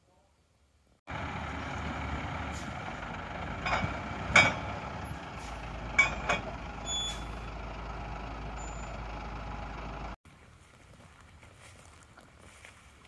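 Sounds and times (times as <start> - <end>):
truck engine running: 1.1 - 10.2
short high beep: 6.9 - 7.3.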